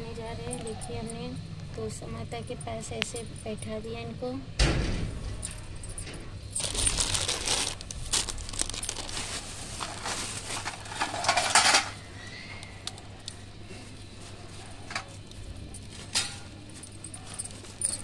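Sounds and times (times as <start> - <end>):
rustling and crinkling: 5.2 - 12.1, 12.8 - 18.0.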